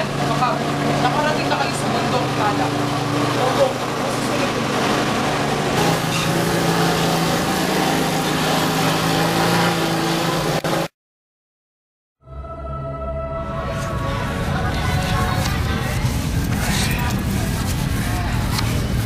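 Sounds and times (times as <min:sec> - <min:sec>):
road traffic engine noise: 0:00.0 - 0:10.9, 0:13.6 - 0:19.0
music: 0:12.2 - 0:16.0.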